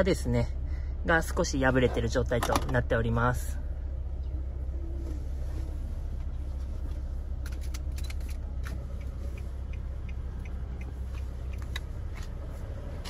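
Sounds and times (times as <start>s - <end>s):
car interior rumble: 0.0s - 13.0s
light clicks and ticks: 7.4s - 12.5s.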